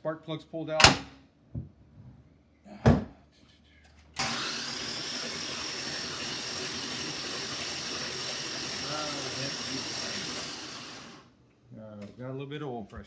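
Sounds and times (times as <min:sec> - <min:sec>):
starter cranking engine: 0:04.2 - 0:11.2.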